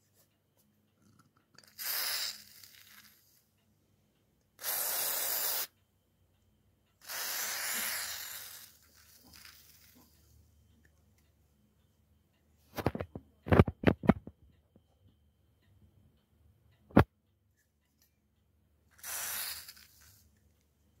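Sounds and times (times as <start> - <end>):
aerosol spray hissing: 1.7 - 3.1, 4.6 - 5.7, 7.0 - 9.9, 19.0 - 20.2.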